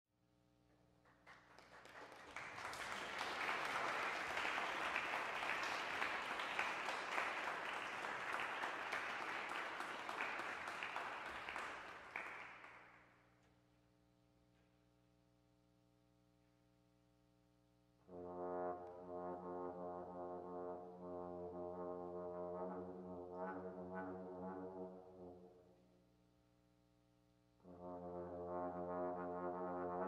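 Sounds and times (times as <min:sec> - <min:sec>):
audience applauding: 0:01.2 - 0:12.9.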